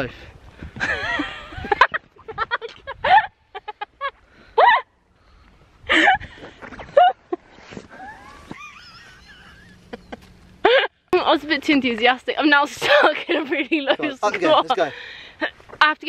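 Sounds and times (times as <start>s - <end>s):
woman laughing: 0.8s - 4.9s, 5.9s - 11.0s, 12.7s - 14.7s.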